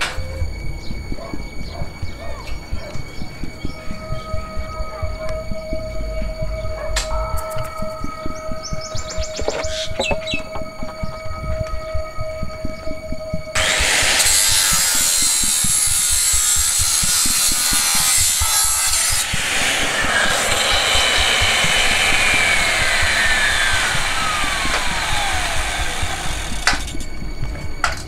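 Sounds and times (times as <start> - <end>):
falling whine: 0.0 - 28.0
angle grinder on steel: 13.6 - 27.0.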